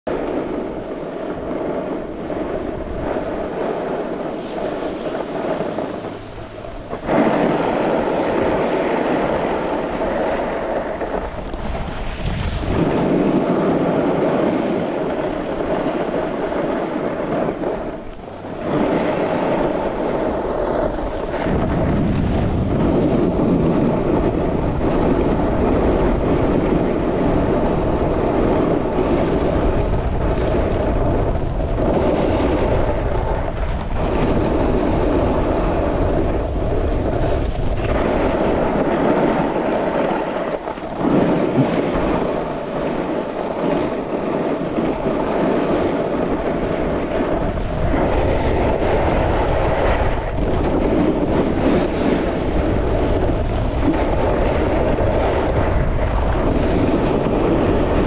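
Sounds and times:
wind rushing over microphone: 0.0 - 58.0
skis hissing over snow: 0.1 - 58.0.

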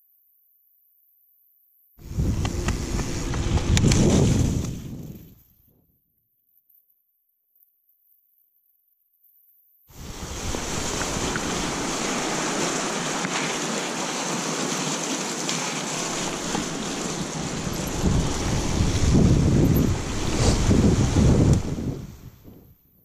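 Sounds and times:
bike tyres rolling on rough ground: 2.0 - 5.4, 10.0 - 22.6
low wind buffeting: 2.0 - 5.4, 9.9 - 13.7, 15.8 - 23.0
wind over microphone: 2.0 - 5.8, 9.9 - 13.2, 16.0 - 23.0.

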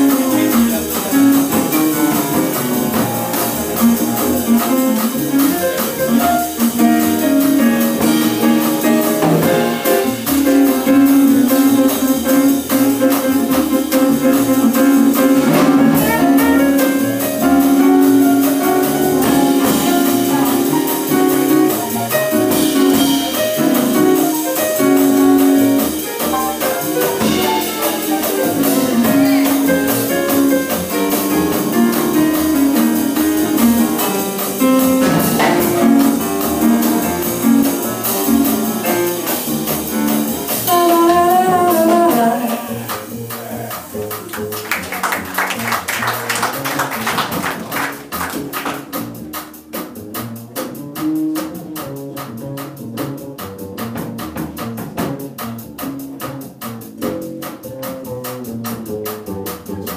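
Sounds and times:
drums and cymbals: 0.0 - 59.9
jazz band playing: 0.0 - 59.9
horn lead: 7.2 - 32.7, 33.4 - 44.8.

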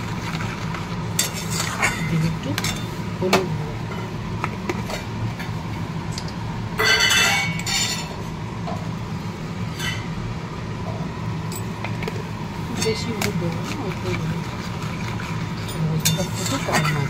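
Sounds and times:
steady low hum: 0.0 - 17.0
metal utensils clinking on wok: 1.2 - 2.9, 6.8 - 8.1, 15.6 - 17.0.

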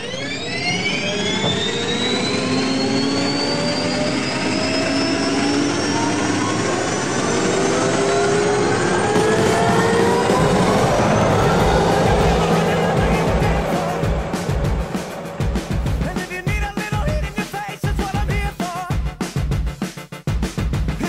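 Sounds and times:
gas turbine whine: 0.0 - 16.5
steady rushing noise: 8.3 - 16.6.

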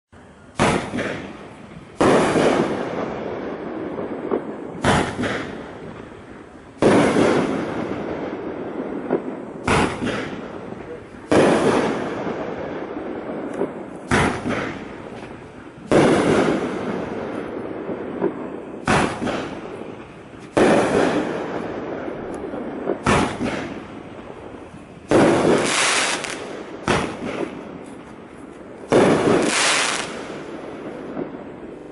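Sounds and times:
crackling hiss of fireworks: 0.2 - 31.9
firework aerial bursts: 0.4 - 31.9
firework launch thumps: 4.3 - 5.6, 13.6 - 16.8, 22.9 - 23.8.

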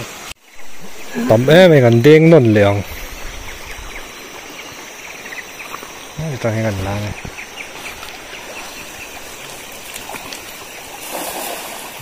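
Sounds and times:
river running over stones: 0.0 - 12.0
cast net splashing into water: 7.8 - 12.0.

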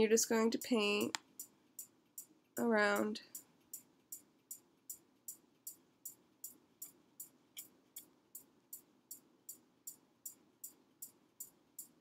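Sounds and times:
faint background music: 0.0 - 12.0
shaker beat: 0.0 - 12.0.

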